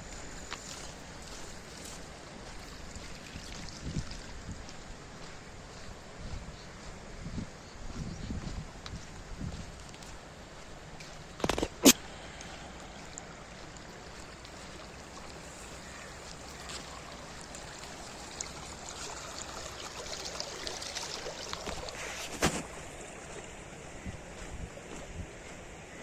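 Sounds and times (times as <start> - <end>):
water running in channel: 0.0 - 6.2, 9.7 - 26.0.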